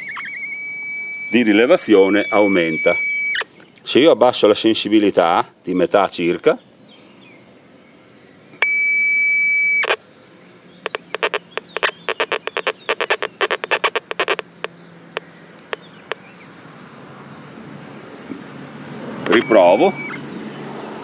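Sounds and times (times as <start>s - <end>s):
metal detector short beeps: 0.0s - 3.5s, 8.6s - 10.0s, 10.8s - 14.4s, 19.3s - 20.2s
metal detector tone: 0.0s - 3.5s, 8.6s - 10.0s, 10.8s - 16.2s, 19.2s - 20.2s.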